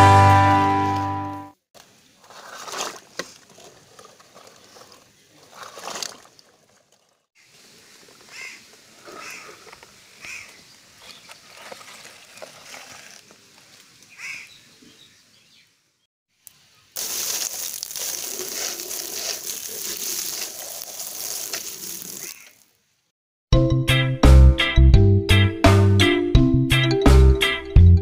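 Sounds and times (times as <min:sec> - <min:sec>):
water splashing onto toy in mud: 0:02.2 - 0:07.1, 0:17.0 - 0:22.6.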